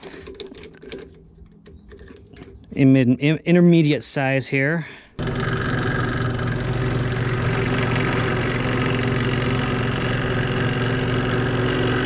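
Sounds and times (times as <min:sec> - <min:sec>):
drill press motor running: 0:05.2 - 0:12.0.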